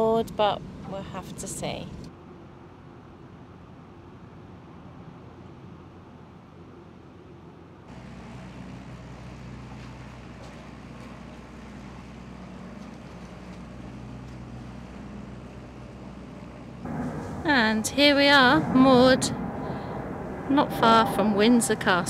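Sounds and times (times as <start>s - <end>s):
boat diesel engine humming: 7.9s - 22.0s.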